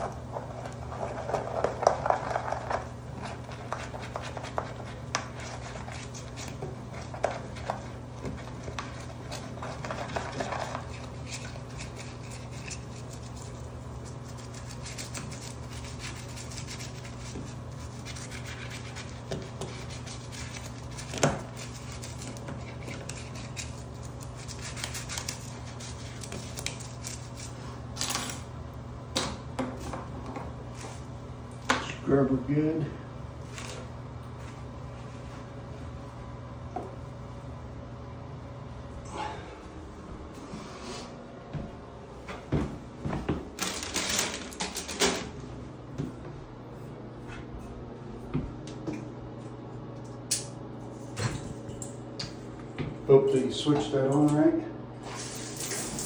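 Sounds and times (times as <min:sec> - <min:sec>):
toothbrush scrubbing metal drain: 0:00.0 - 0:27.6
steady low hum: 0:00.0 - 0:56.0.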